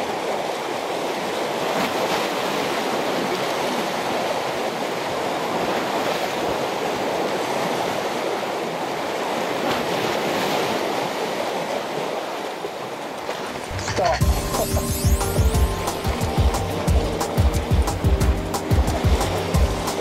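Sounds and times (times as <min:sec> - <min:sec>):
sea waves washing against concrete: 0:00.8 - 0:20.0
music: 0:13.7 - 0:20.0.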